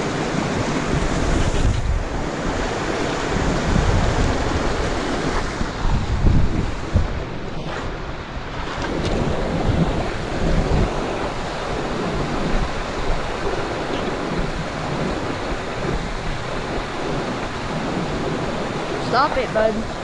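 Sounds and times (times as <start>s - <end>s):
creek rushing: 0.0s - 20.0s
wind buffeting microphone: 0.0s - 20.0s.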